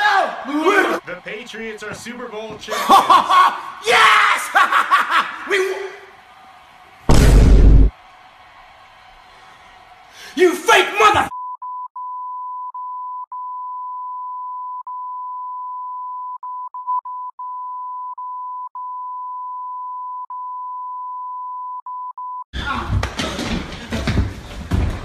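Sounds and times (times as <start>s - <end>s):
loud noisy sound: 7.1s - 7.9s
censor bleep: 11.4s - 22.4s.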